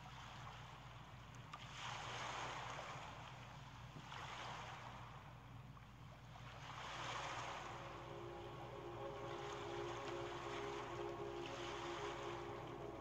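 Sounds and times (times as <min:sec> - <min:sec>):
waves washing in and out: 0:01.6 - 0:13.0
steady low hum: 0:06.6 - 0:13.0.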